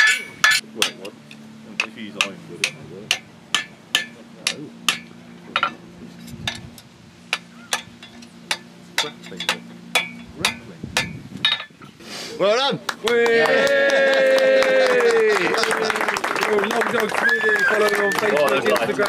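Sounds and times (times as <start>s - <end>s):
hammer striking steel on anvil: 0.0s - 1.1s, 1.7s - 5.8s, 7.3s - 11.8s.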